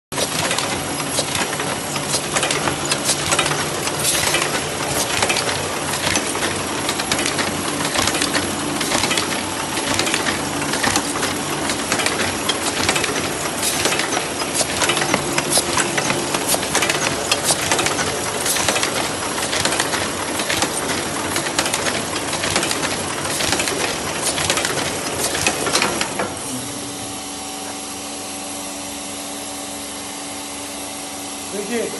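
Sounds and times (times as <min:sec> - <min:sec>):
sewing machine clattering: 0:00.1 - 0:26.4.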